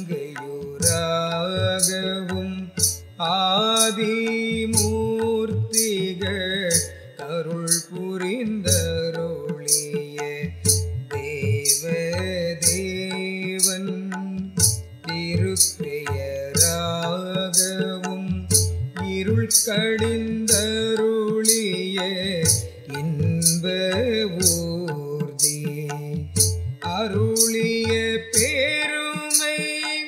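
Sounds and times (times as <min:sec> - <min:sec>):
deep hand-drum beats: 0:08.7 - 0:13.1, 0:13.9 - 0:17.1, 0:18.0 - 0:28.7.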